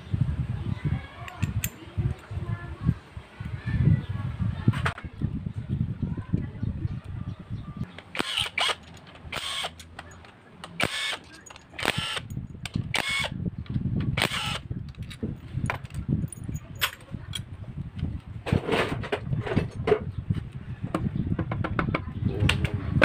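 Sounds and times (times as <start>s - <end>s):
cordless drill spinning out bolts: 8.2s - 9.8s, 10.8s - 12.3s, 14.2s - 14.6s.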